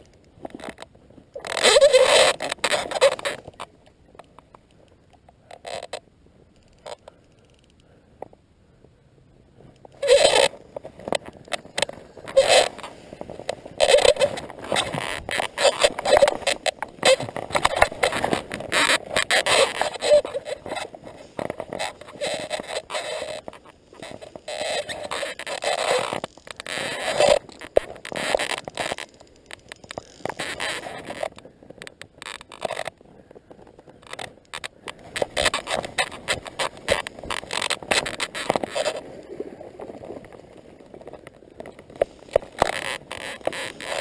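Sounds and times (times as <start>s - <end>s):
camera handling rustling and scraping: 9.8s - 33.0s.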